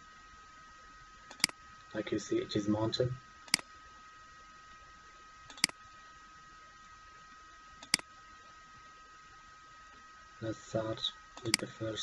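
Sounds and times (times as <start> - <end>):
faint high-pitched hum: 0.0 - 12.0
computer mouse clicks: 1.3 - 1.6, 3.5 - 3.7, 5.5 - 5.8, 7.8 - 8.1, 11.4 - 11.7.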